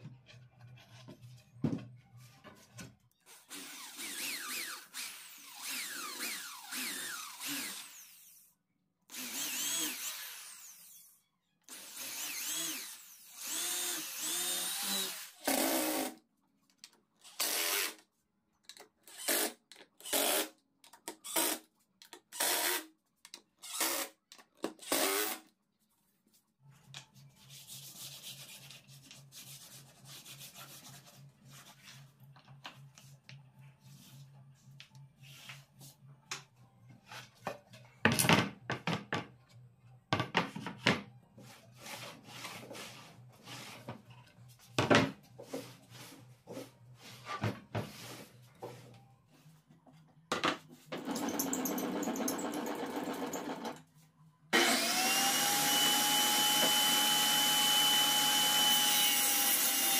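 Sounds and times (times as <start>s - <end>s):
cordless drill boring into wood: 3.5s - 8.4s, 9.1s - 11.0s, 11.7s - 16.1s, 54.6s - 59.9s.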